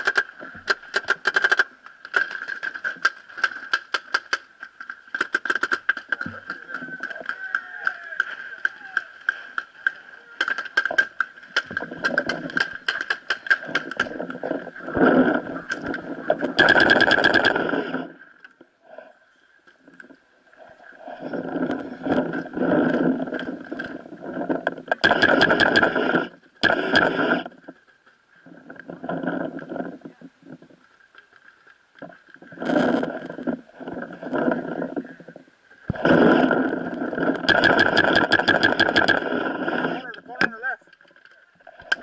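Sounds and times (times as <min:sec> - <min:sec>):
paintball marker firing rapidly: 0:00.0 - 0:01.7, 0:16.6 - 0:17.6, 0:25.0 - 0:26.0, 0:37.4 - 0:39.2
rushing rustling noise: 0:32.5 - 0:40.1.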